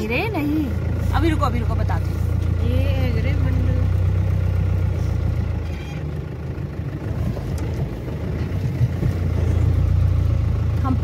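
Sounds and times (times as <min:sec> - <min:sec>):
car engine and road drone: 0:00.0 - 0:11.0.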